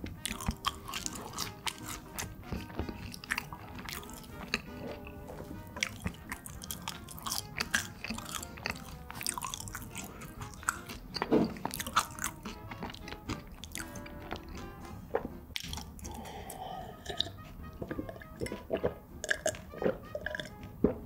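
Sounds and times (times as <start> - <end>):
chewing and crunching fries: 0.0 - 21.0
quiet background music: 0.0 - 21.0.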